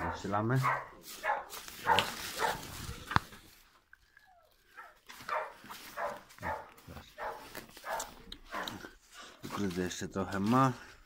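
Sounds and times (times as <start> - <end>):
dog barking: 0.0 - 2.8, 4.7 - 8.9.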